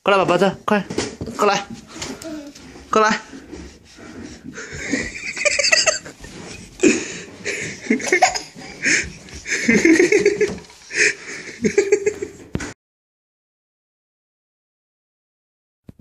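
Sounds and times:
toddler giggling: 2.0s - 2.6s, 4.6s - 12.4s
people laughing: 4.5s - 12.4s.

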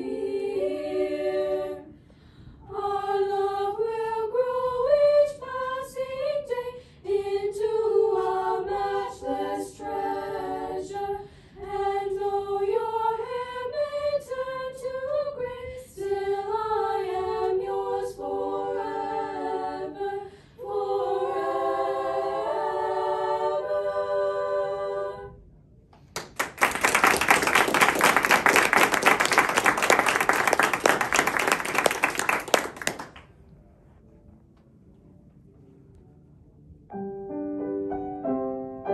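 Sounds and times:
girls singing a cappella: 0.0s - 25.4s
audience applauding: 26.1s - 33.3s.

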